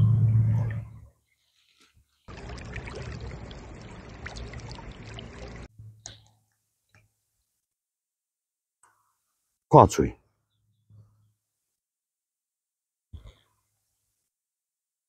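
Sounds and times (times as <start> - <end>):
loud low hum: 0.0 - 1.0
fish splashing in water: 1.7 - 5.7.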